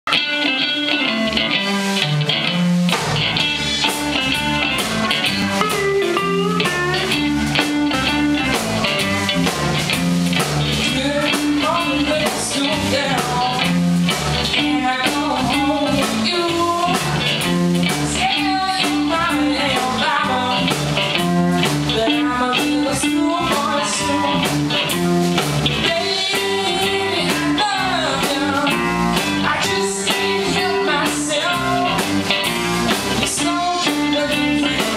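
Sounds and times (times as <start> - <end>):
lead guitar bending notes: 0.1 - 10.8
blues-rock band playing: 0.1 - 34.9.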